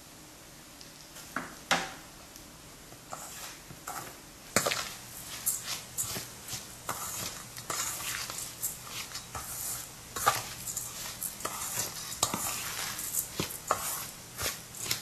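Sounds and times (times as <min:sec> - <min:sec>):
spoon scraping spice mix: 0:03.1 - 0:15.0.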